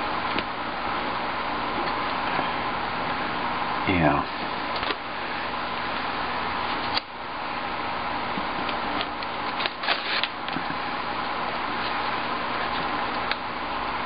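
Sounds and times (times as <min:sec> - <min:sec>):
steady fan-like hiss: 0:00.0 - 0:14.0
tape crackling and rustling: 0:08.3 - 0:13.5.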